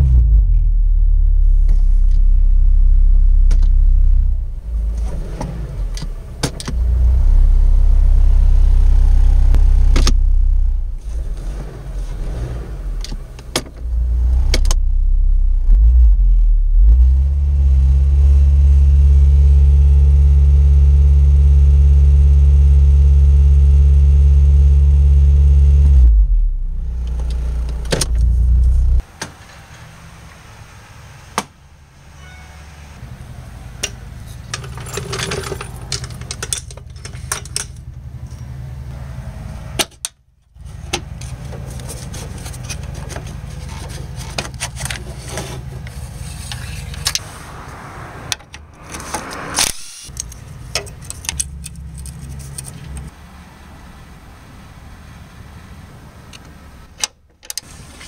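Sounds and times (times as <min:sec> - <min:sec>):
car engine idling: 0:00.0 - 0:32.0, 0:33.1 - 0:56.0
tools and metal parts rattling: 0:34.3 - 0:38.5, 0:50.0 - 0:53.1.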